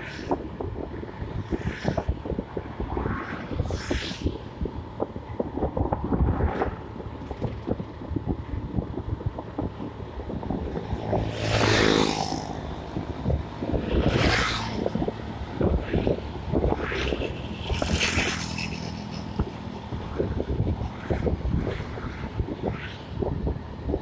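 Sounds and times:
vehicles whooshing past: 0:00.0 - 0:24.0
wind buffeting microphone: 0:00.0 - 0:24.0.

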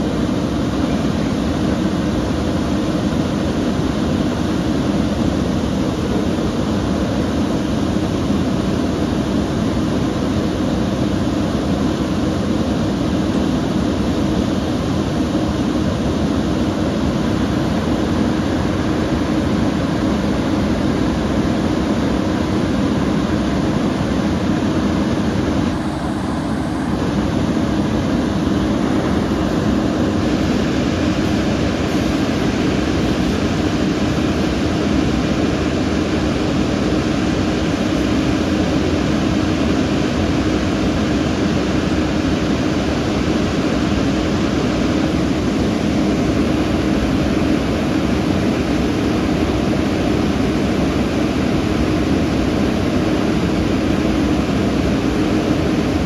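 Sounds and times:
fire engine running: 0:11.6 - 0:52.9.

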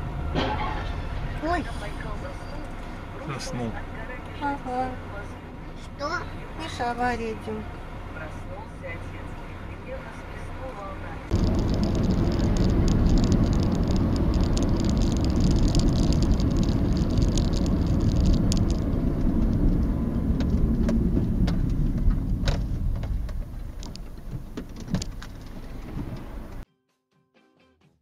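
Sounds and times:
car road and engine rumble: 0:00.0 - 0:26.6
small clicks and rattles: 0:11.3 - 0:26.6.

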